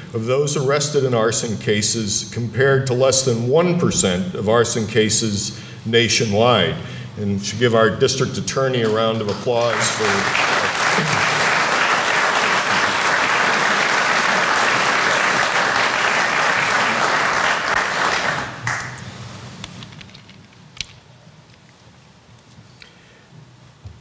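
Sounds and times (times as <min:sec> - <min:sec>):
audience applauding: 0:08.8 - 0:19.0.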